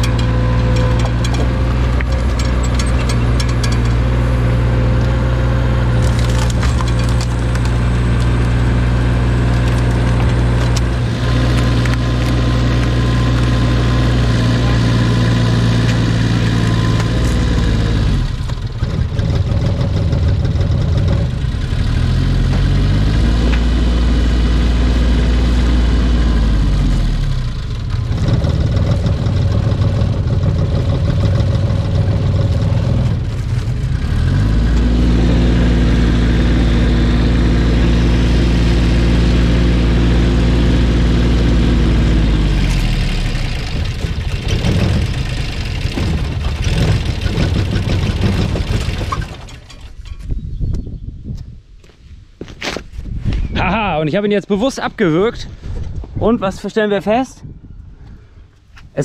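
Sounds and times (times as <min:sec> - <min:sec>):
diesel engine running: 0:00.0 - 0:50.0
wood cracking as it splits: 0:05.9 - 0:13.6.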